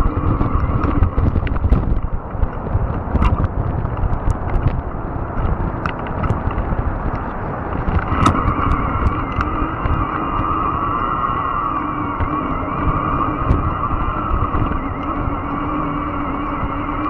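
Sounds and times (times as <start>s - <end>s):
electric motor whine: 0.0s - 2.2s, 7.8s - 17.0s
tyres rumbling on rough ground: 0.0s - 17.0s
wind on microphone: 0.0s - 17.0s.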